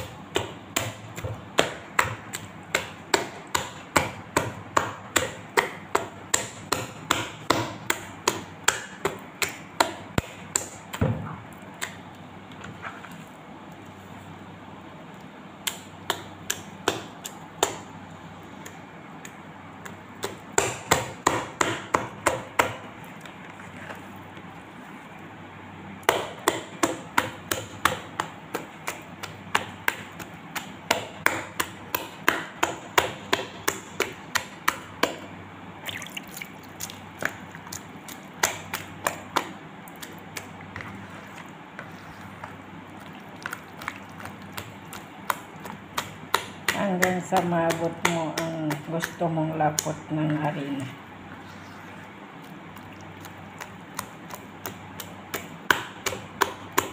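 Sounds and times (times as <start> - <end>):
hand slapping wet batter: 0.0 - 12.3, 15.6 - 18.0, 18.6 - 24.0, 26.0 - 51.0, 52.3 - 56.9.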